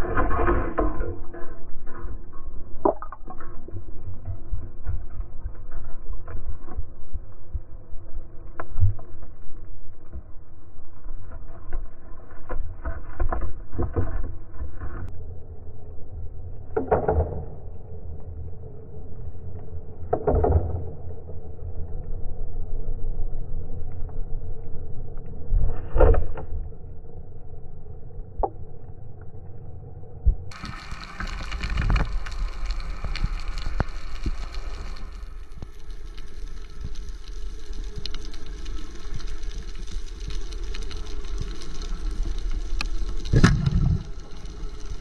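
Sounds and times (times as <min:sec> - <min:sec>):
underwater rumble: 0:00.0 - 0:45.0
water rushes: 0:43.2 - 0:45.0.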